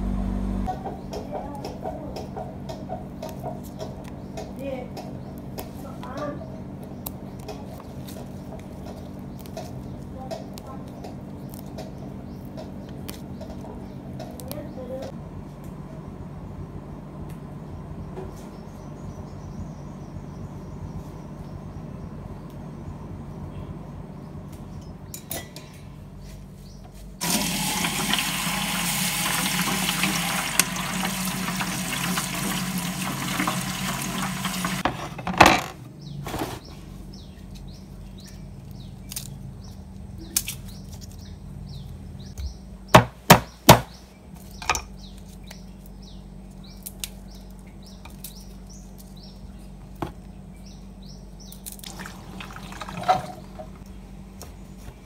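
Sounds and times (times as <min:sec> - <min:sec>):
kitchen tap running: 0:27.2 - 0:35.0, 0:51.8 - 0:53.8
knocks on wooden chopping block: 0:42.9 - 0:43.9.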